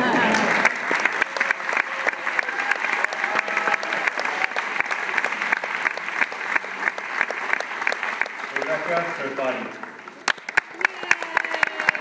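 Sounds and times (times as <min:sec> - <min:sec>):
audience applauding: 0:00.0 - 0:12.0.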